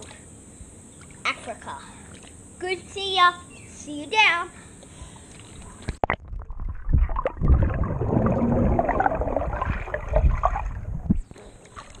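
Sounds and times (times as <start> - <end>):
bubbles gurgling underwater: 6.0 - 11.2
low thumps of swimming strokes: 6.0 - 11.9.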